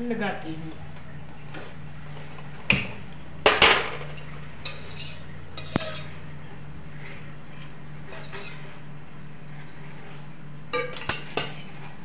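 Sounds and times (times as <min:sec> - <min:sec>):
steady low hum: 0:00.0 - 0:12.0
metal pan and spoon clanking: 0:03.5 - 0:06.2, 0:10.7 - 0:11.7.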